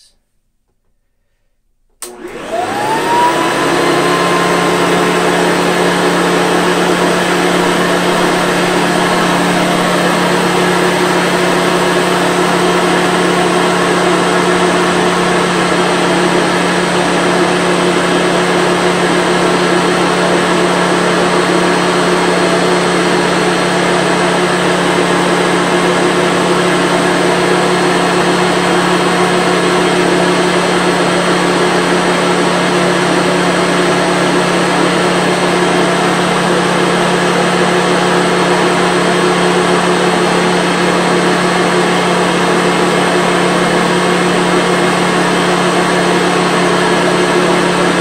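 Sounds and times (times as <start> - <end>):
upright vacuum cleaner motor: 2.0 - 48.0.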